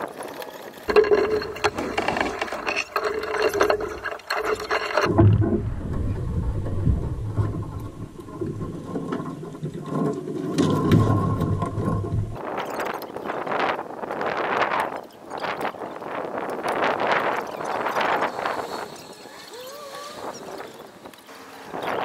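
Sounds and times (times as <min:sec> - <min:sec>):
rigging wire rattling and clinking: 0:00.3 - 0:05.4
wind rumble on microphone: 0:05.0 - 0:22.0.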